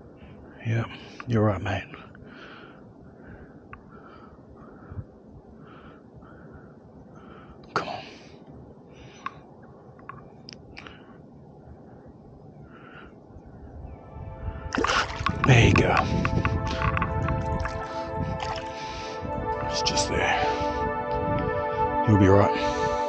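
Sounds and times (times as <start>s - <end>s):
water sloshing and splashing: 14.7s - 15.4s, 16.6s - 18.9s
water dripping: 14.7s - 18.9s.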